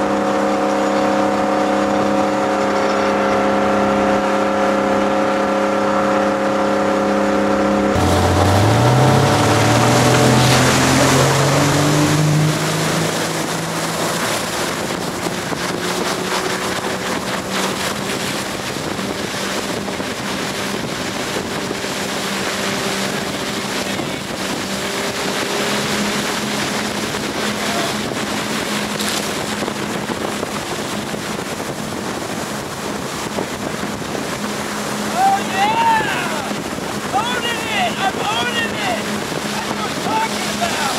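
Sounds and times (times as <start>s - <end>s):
motorboat engine: 0.0s - 40.9s
wind on microphone: 7.9s - 35.2s.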